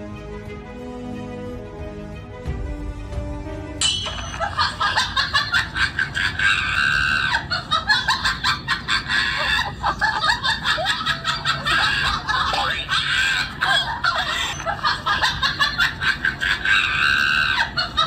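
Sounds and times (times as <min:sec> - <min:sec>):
background music: 0:00.0 - 0:18.0
comedic cackling sound effect: 0:03.8 - 0:18.0.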